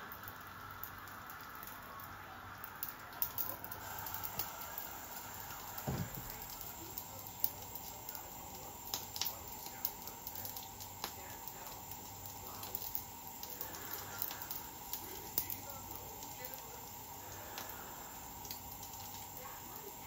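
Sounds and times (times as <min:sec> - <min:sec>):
fish sizzling on grill: 0:00.0 - 0:20.0
dull knock: 0:05.9 - 0:06.3.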